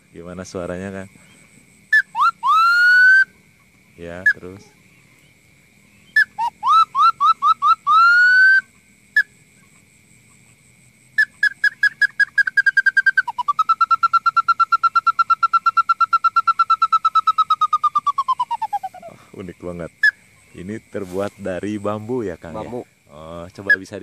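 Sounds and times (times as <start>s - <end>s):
bird-call whistle chirps and trill: 1.9s - 3.4s, 4.2s - 9.7s, 11.2s - 19.2s, 23.6s - 24.0s.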